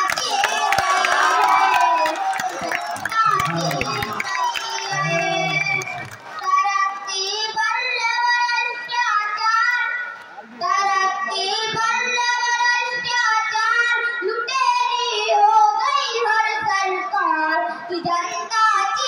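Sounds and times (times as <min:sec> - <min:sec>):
boy singing unaccompanied: 0:06.4 - 0:19.0.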